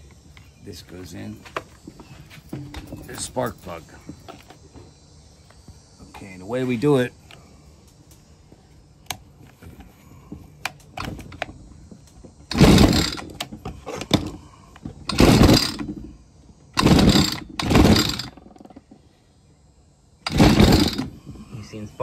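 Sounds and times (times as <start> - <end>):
recoil starter cord pulls: 12.5 - 16.1, 16.8 - 18.6, 20.2 - 21.1.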